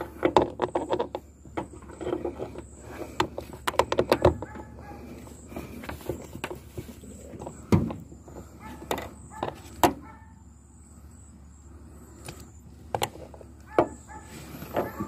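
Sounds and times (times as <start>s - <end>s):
sharp knocks and clunks: 5.5s - 10.0s.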